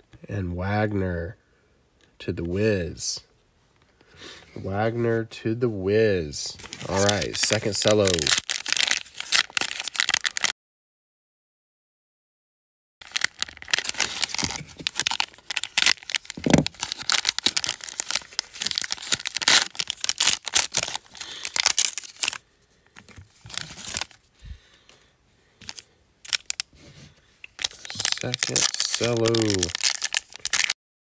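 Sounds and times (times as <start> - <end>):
plastic wrapper tearing and crinkling: 6.6 - 10.5, 13.0 - 22.4, 23.0 - 24.2, 25.6 - 26.7, 27.5 - 30.8.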